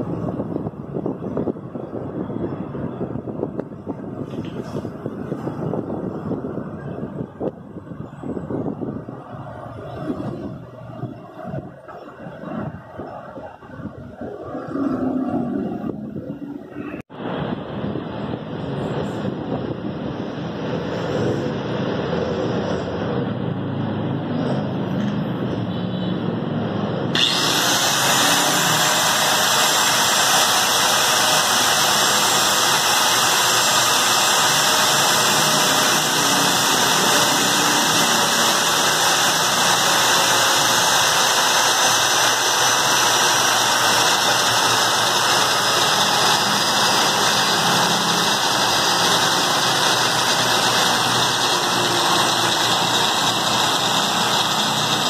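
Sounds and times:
angle grinder running: 27.2s - 55.0s.

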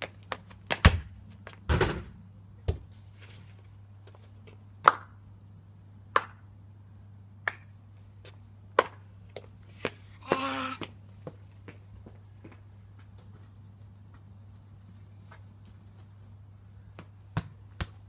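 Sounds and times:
ball landing and bouncing: 0.7s - 2.9s, 17.0s - 18.0s
football kicked hard: 0.8s - 2.1s.

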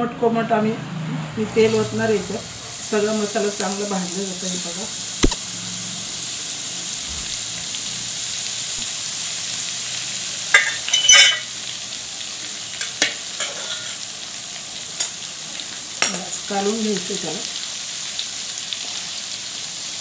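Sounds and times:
oil sizzling in powder: 1.6s - 14.1s.

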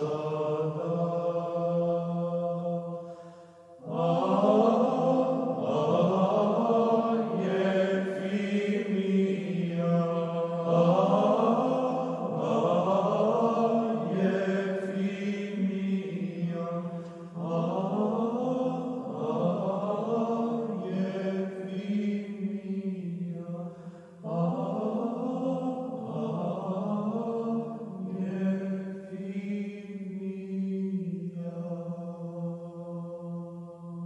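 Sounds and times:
choir singing chant-like music: 0.0s - 34.0s.

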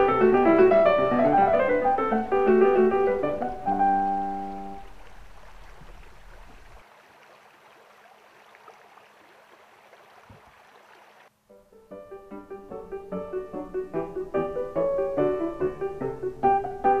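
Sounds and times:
creek water rushing: 1.2s - 11.4s.

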